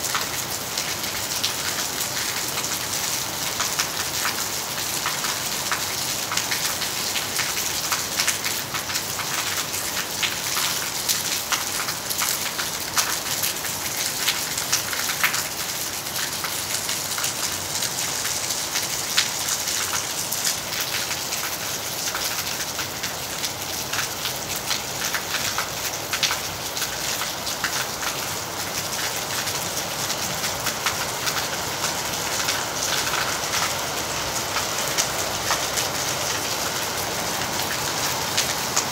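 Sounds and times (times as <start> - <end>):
heavy rain on metal roof: 0.0 - 38.9.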